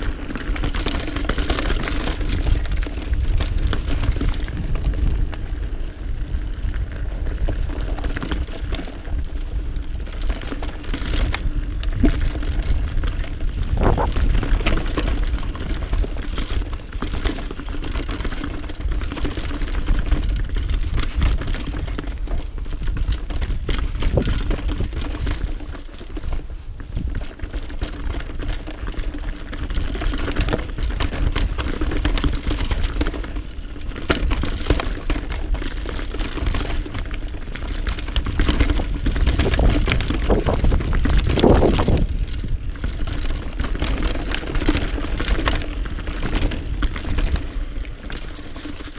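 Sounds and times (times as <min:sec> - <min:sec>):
bike frame and chain clattering: 0:00.0 - 0:05.4, 0:06.7 - 0:48.9
steady low rumble: 0:11.3 - 0:14.8
tyres crunching over roots and stones: 0:12.2 - 0:15.0, 0:37.7 - 0:48.9.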